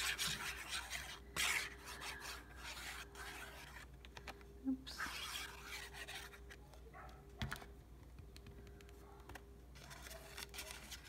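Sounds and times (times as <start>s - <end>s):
paper scraping: 0.0s - 3.9s, 9.8s - 11.0s
soft paper rustle: 8.5s - 11.0s.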